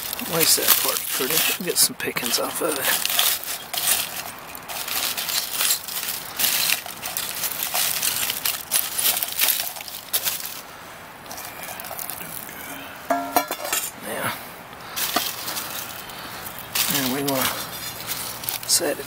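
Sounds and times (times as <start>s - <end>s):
aluminium foil crinkling: 0.0s - 10.7s, 11.3s - 13.9s, 14.9s - 19.0s.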